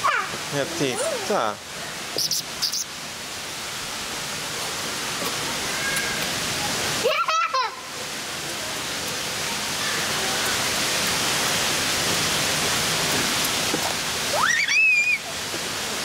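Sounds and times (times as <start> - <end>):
child squealing: 0.0 - 1.4, 14.3 - 15.3.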